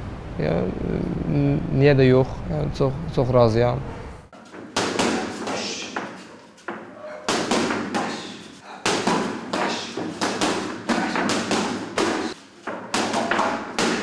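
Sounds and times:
boxing gloves hitting pads: 0:04.4 - 0:14.0.

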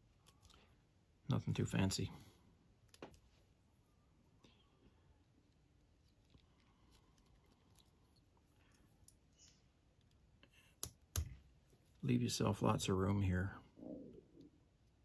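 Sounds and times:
faint ticking of handling thread: 0:04.2 - 0:12.1.

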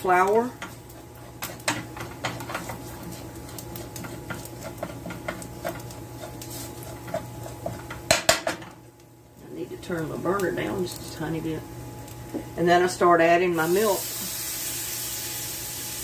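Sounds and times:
metal spoon scraping a skillet: 0:00.6 - 0:08.0.

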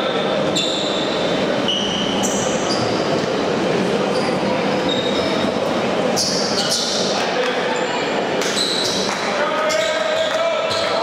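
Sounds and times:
shoes squeaking on court floor: 0:00.1 - 0:03.2, 0:04.1 - 0:05.5, 0:08.4 - 0:11.0.

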